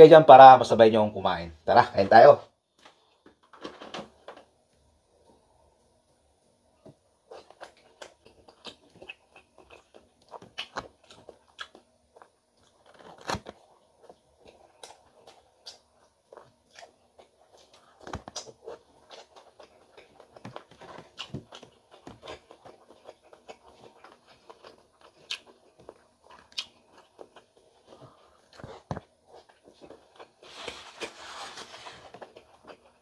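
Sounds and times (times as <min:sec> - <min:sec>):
person chewing: 0:06.9 - 0:33.0.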